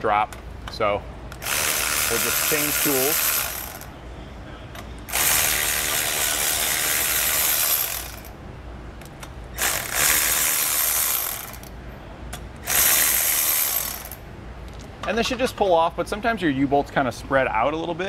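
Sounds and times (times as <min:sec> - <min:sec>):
electric ratchet running: 0:01.4 - 0:03.9, 0:05.1 - 0:08.4, 0:09.6 - 0:11.7, 0:12.6 - 0:14.2.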